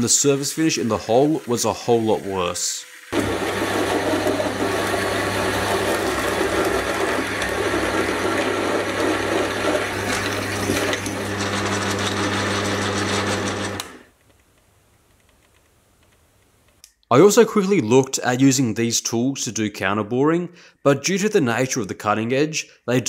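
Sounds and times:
drill bit cutting steel: 3.1 - 14.0
lathe motor hum: 3.2 - 14.0.

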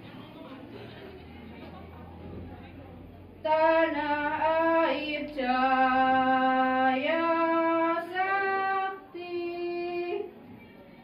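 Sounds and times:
women's choir singing: 3.4 - 10.4.

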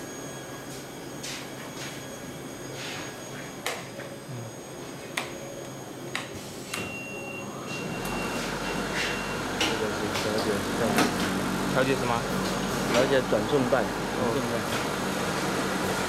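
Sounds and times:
thin whine: 0.0 - 10.1
machine low hum: 0.0 - 16.0.

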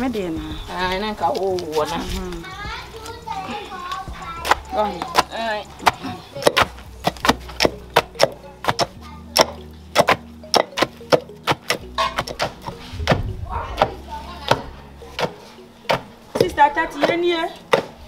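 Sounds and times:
wooden pestles pounding in mortar: 4.2 - 18.0.

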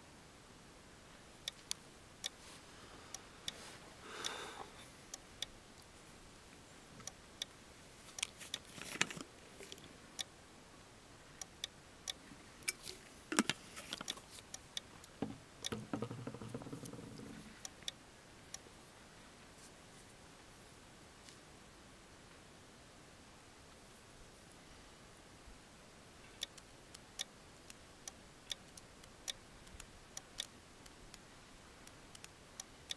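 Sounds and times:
handling rustles: 8.0 - 9.9, 12.6 - 14.5.

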